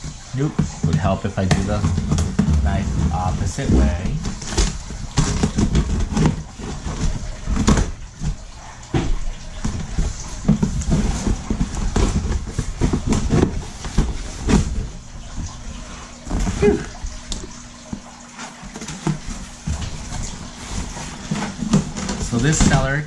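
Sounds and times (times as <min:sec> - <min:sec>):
cardboard box scraping and knocking: 0:00.8 - 0:08.4, 0:09.6 - 0:14.9.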